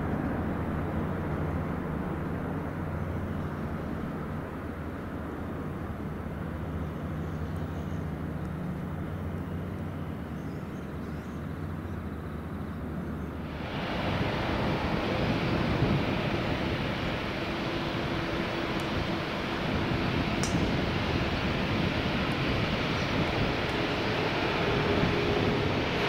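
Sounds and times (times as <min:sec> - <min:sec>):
jet engines rumbling: 0:00.0 - 0:26.0
hissy jet noise: 0:13.4 - 0:26.0.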